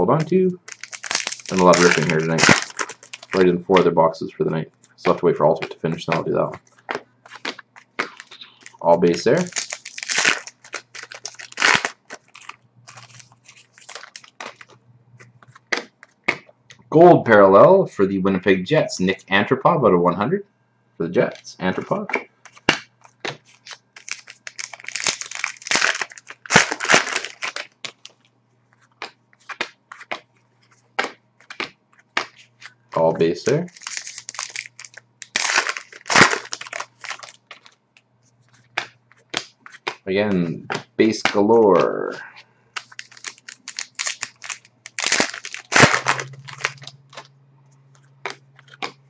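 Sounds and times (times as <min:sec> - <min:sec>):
foil wrapper crinkling and tearing: 0:00.0 - 0:03.6, 0:06.8 - 0:14.8, 0:22.4 - 0:28.2, 0:32.6 - 0:37.8, 0:42.8 - 0:47.3
trading cards clicking and rustling: 0:00.1 - 0:04.0, 0:05.0 - 0:16.5, 0:21.4 - 0:28.2, 0:28.8 - 0:42.2, 0:42.8 - 0:49.0.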